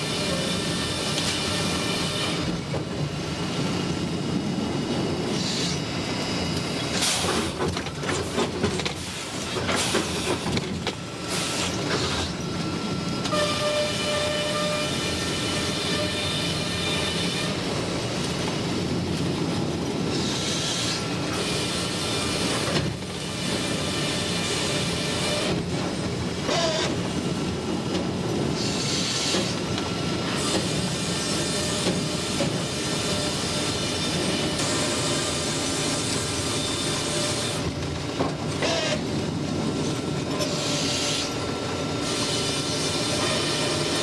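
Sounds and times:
log carriage running on track: 0.0 - 44.0
saw cutting wood: 26.5 - 27.0, 38.5 - 39.1, 40.3 - 41.4, 42.0 - 44.0.

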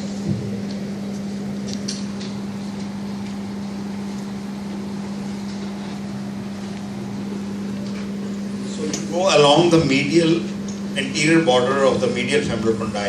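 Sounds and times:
low electrical hum: 0.0 - 13.0
room noise rush: 3.4 - 13.0.

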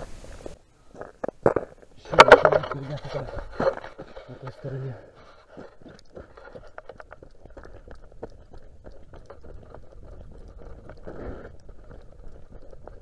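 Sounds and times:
footsteps crunching on snowy ice: 2.7 - 13.0
wind rumbling on microphone: 5.8 - 13.0.

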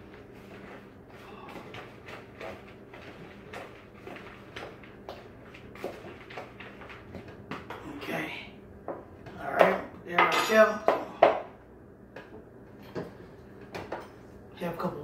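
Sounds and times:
utensil stirring in a plastic bowl: 0.0 - 7.7.

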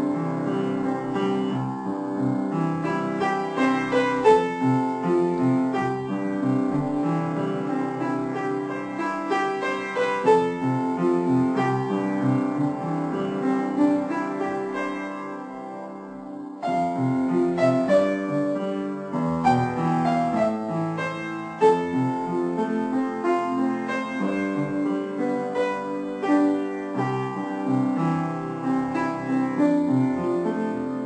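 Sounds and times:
background piano music: 0.0 - 31.0.

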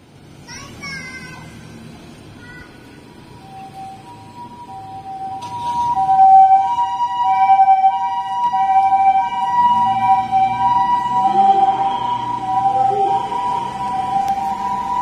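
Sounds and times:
ambulance two-tone siren: 3.0 - 15.0.

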